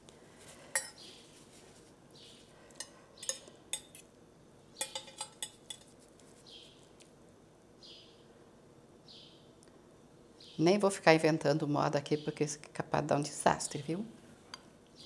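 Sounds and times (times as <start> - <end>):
cutlery clinking on a plate: 0.7 - 1.0, 2.8 - 4.1, 4.8 - 6.0.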